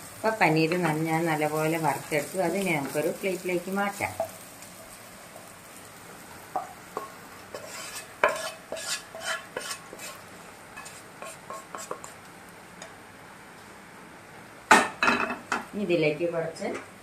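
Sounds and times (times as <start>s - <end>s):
spatula scraping frying pan: 6.9s - 12.3s.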